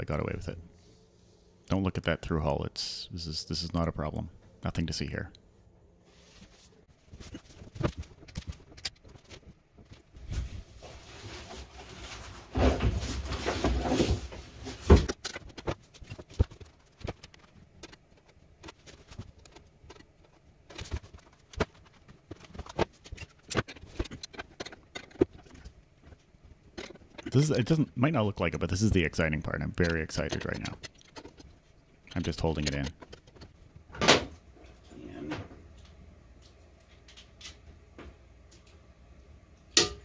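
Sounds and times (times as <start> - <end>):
scraping and shuffling: 6.0 - 33.8.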